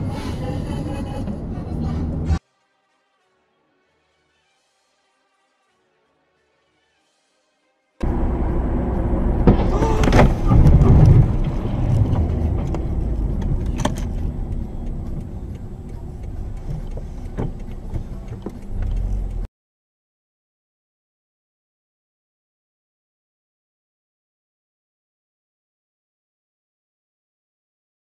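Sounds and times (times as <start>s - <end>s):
road and wind noise in car: 0.0s - 2.4s, 8.0s - 19.5s
knocks and rattling: 9.2s - 14.6s
scattered clicks: 10.0s - 19.5s.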